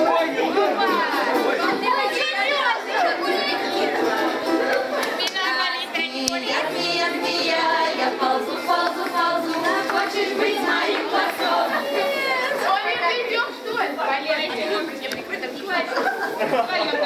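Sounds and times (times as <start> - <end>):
group of voices singing folk song: 0.0 - 12.7.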